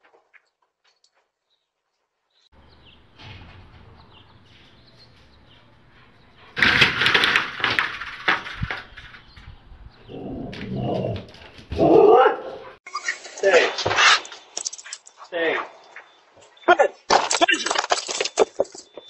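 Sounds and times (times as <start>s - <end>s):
screen door crashing and clattering: 2.6s - 5.9s, 6.5s - 9.5s, 17.1s - 19.0s
faint bird chirps: 18.2s - 19.0s.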